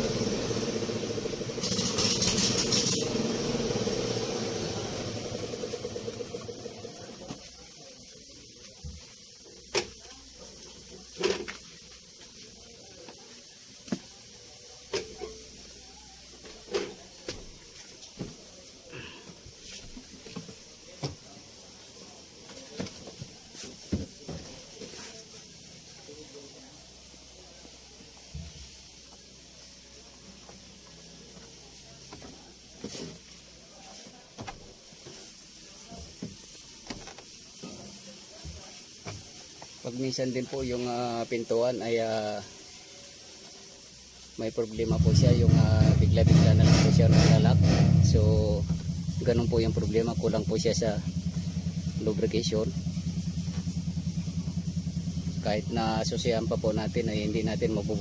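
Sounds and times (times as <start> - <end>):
aerosol spray hissing: 0.0 - 58.0.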